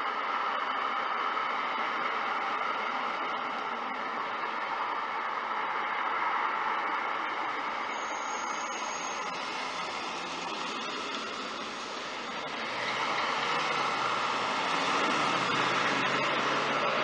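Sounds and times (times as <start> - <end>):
hissing street noise: 0.0 - 17.0
faint high whine: 1.8 - 12.5
car driving past: 8.0 - 17.0.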